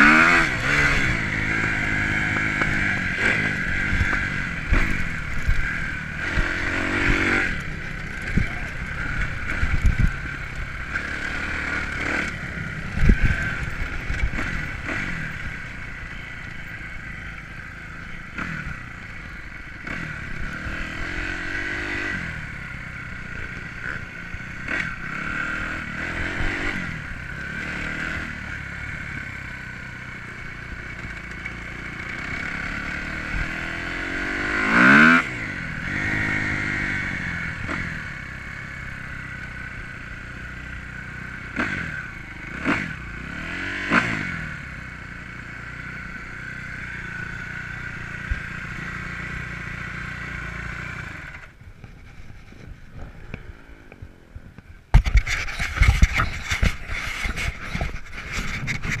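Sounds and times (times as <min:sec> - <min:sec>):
motocross engine revving: 0:00.0 - 0:53.9
chassis clattering over bumps: 0:01.6 - 0:15.4, 0:54.9 - 0:59.0.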